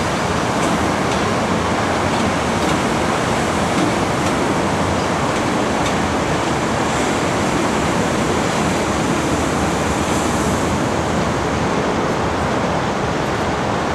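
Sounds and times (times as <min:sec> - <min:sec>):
train rushing along tracks: 0:00.0 - 0:13.9.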